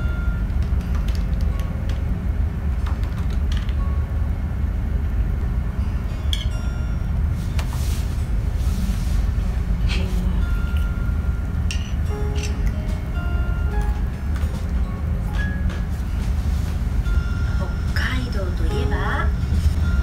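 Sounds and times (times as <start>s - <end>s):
ferry engines rumbling: 0.0s - 20.0s.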